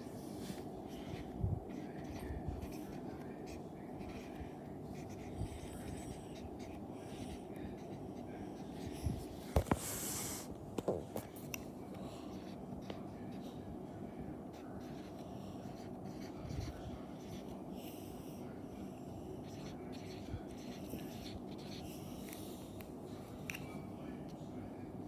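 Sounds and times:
steady low hum: 0.0 - 25.0
marker scratching on whiteboard: 0.8 - 10.5, 14.5 - 17.6, 19.4 - 22.4.

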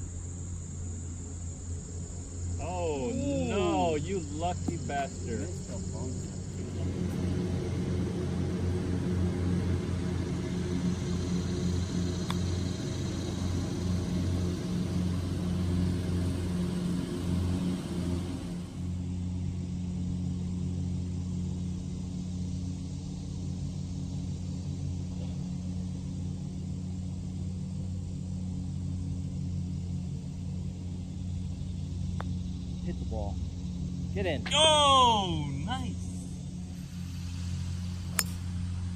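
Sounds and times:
distant engine hum: 0.0 - 38.9.

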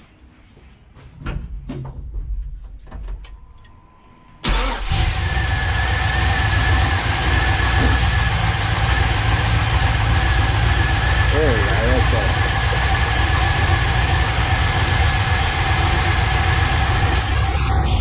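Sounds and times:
engine cranking on starter: 4.4 - 17.8
engine idling loudly: 4.5 - 18.0
thin high whine: 5.4 - 18.0.

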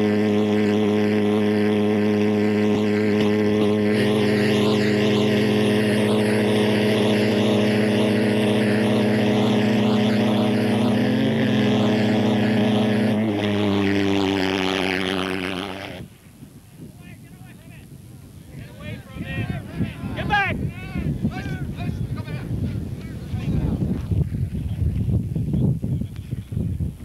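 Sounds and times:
pulse-jet engine buzzing drone: 0.0 - 16.2.

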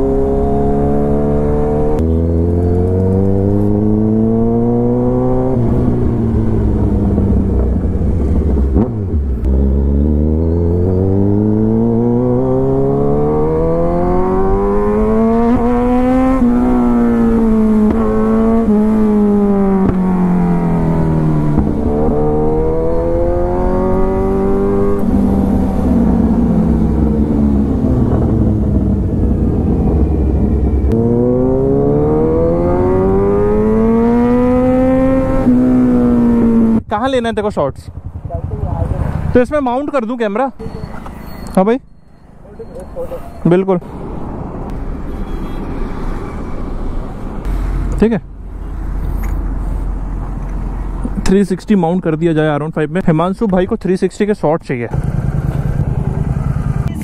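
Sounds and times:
motorcycle engine accelerating: 0.0 - 42.0, 54.9 - 57.0.

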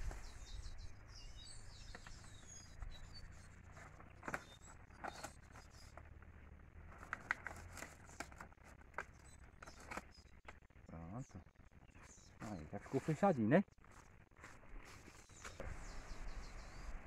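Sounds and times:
small bird chirps: 0.0 - 6.1, 9.0 - 13.1.

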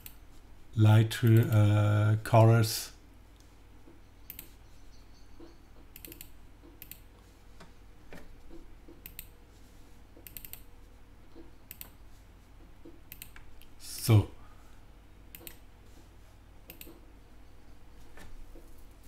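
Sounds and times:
computer mouse clicks: 0.0 - 0.2, 4.3 - 4.6, 5.4 - 9.3, 10.2 - 10.7, 11.7 - 12.0, 13.1 - 13.7, 15.3 - 15.6, 16.6 - 17.0
faint steady hum: 0.0 - 19.0.

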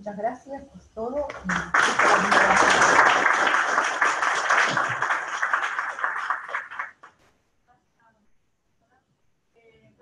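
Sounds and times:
applause: 1.3 - 7.2.

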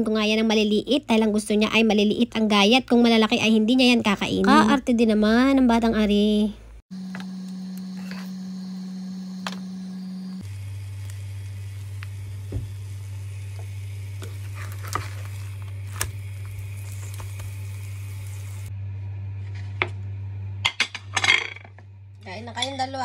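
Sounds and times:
steady low hum: 5.6 - 23.0
eggs sizzling in a pan: 7.1 - 18.7.

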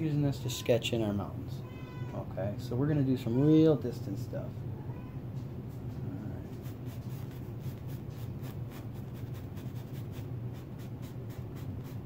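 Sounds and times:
steady low hum: 0.0 - 12.0
brush scratching on canvas: 6.4 - 12.0.

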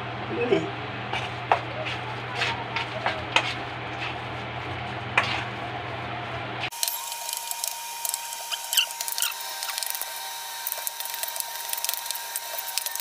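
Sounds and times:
hands squishing wet dough: 7.3 - 10.1.

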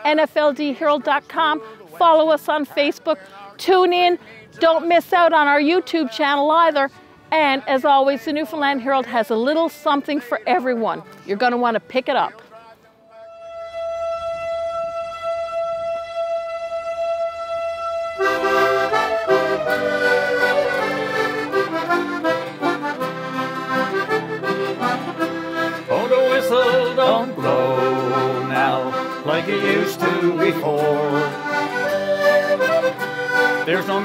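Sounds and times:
button accordion: 0.0 - 5.0, 8.4 - 34.0
acoustic guitars: 0.0 - 15.6, 17.7 - 34.0
held bright tone: 13.2 - 33.8.

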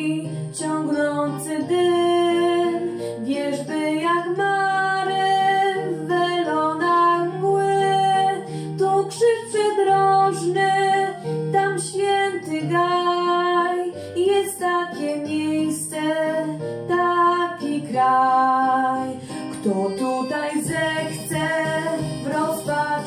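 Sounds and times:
girl singing into microphone: 0.0 - 23.0
instrumental accompaniment: 0.0 - 23.0.

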